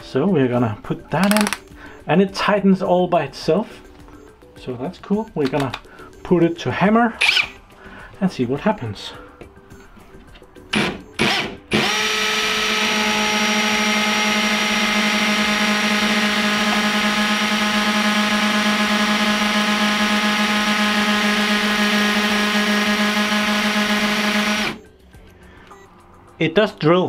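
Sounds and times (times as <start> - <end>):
hammer drill boring into rock: 1.2 - 1.6, 10.7 - 24.8.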